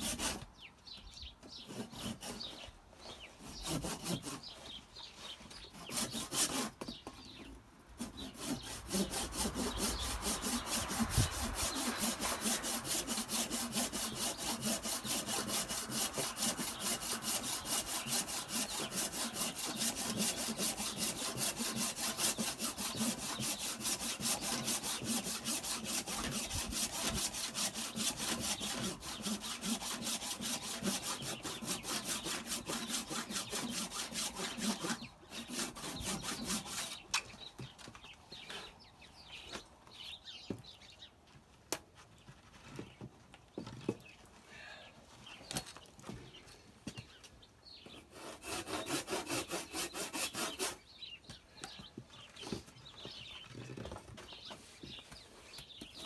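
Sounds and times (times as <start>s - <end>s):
handsaw cutting wood: 0.0s - 0.5s, 1.5s - 2.7s, 3.4s - 4.8s, 5.6s - 37.1s, 47.9s - 50.9s.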